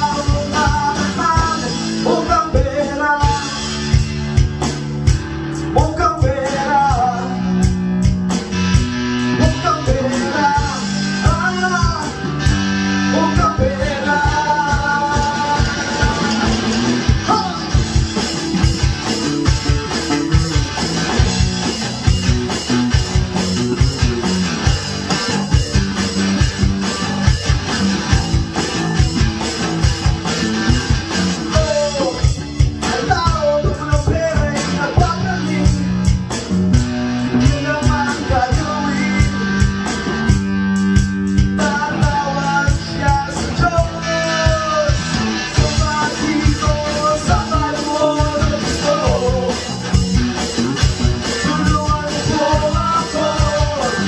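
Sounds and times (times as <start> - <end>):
male lead vocals: 0.0 - 4.5, 5.4 - 21.5, 30.6 - 40.4, 41.2 - 54.0
electric bass: 0.0 - 54.0
electric guitar: 0.0 - 54.0
electronic drum kit beat: 0.0 - 54.0.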